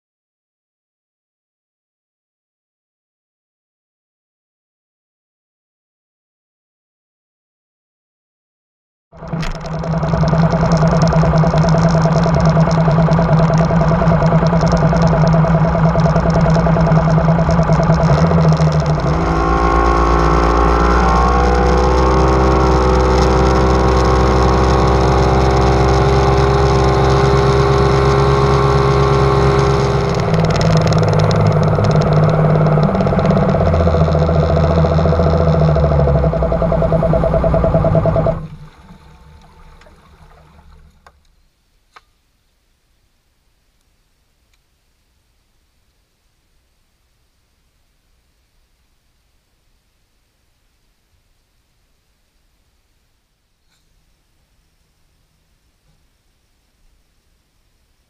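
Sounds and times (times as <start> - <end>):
outboard motor running: 9.2 - 41.2.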